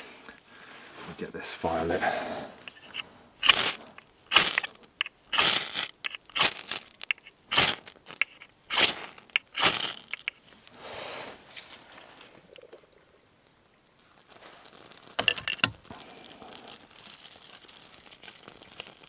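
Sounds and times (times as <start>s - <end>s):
knife scraping ferro rod: 2.7s - 10.4s.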